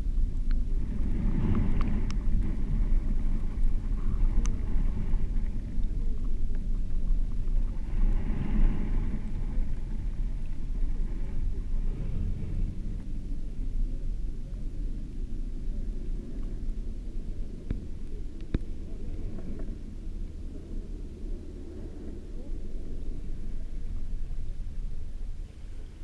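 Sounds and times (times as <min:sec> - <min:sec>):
muffled underwater water rumble: 0:00.0 - 0:26.0.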